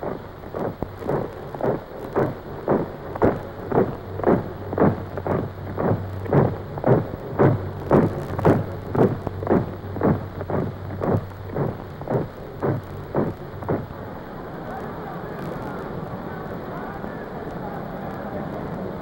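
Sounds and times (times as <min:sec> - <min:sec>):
troops marching boots: 0:00.0 - 0:13.9
low steady hum: 0:00.0 - 0:19.0.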